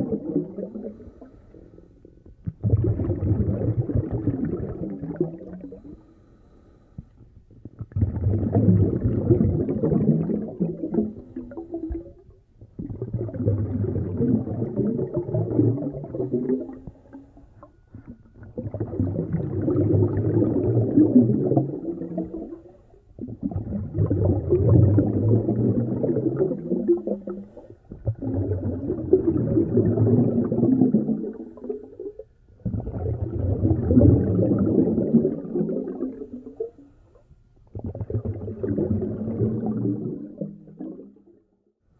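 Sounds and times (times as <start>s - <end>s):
muffled snorkel breathing: 0.7s - 2.3s, 5.6s - 7.7s, 11.0s - 12.1s.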